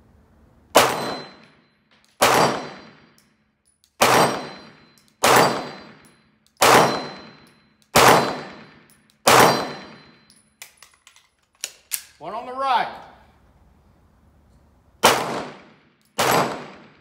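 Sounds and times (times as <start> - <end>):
pistol shots with echo: 0.8 - 1.4, 2.2 - 3.1, 4.0 - 10.2, 15.0 - 17.0.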